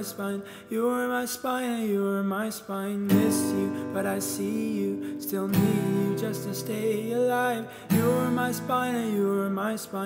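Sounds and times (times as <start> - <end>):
acoustic guitar strum: 3.1 - 10.0.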